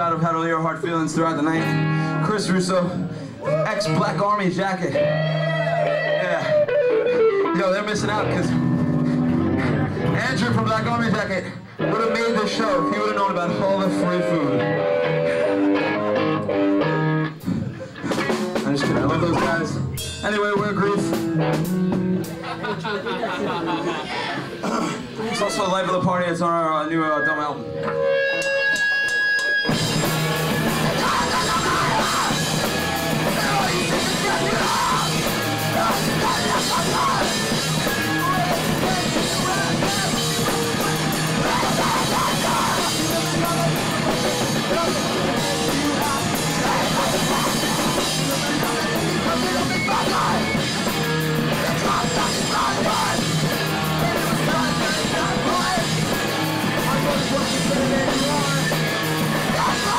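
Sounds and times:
bass guitar: 0:00.0 - 0:24.6, 0:27.6 - 0:59.9
distorted electric guitars: 0:00.0 - 0:25.6, 0:27.0 - 0:59.9
drum kit with cymbals: 0:17.4 - 0:22.6, 0:28.4 - 0:59.9.

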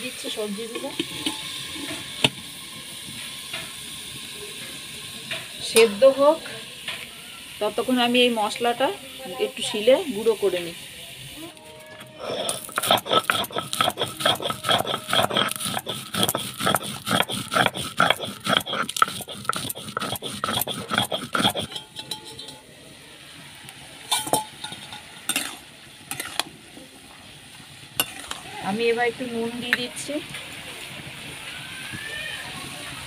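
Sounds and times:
stone grinding spices: 0:12.1 - 0:22.6, 0:24.2 - 0:26.4, 0:28.0 - 0:28.4.

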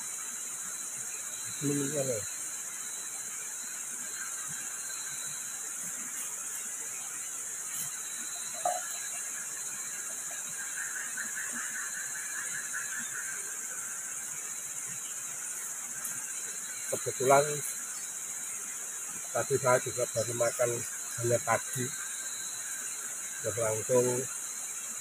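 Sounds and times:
fast pulsing insect trill: 0:00.0 - 0:25.0
night insects chorus: 0:00.0 - 0:25.0.

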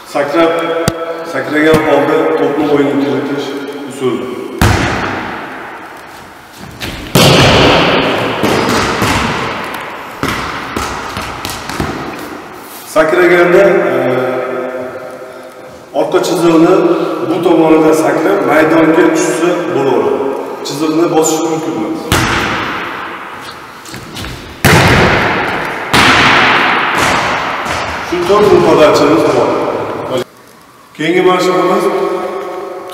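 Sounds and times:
ball bouncing thuds: 0:04.6 - 0:05.8, 0:06.6 - 0:12.4, 0:22.1 - 0:29.5
hand slapping volleyball: 0:04.6 - 0:05.8, 0:06.8 - 0:12.5, 0:22.1 - 0:29.5.

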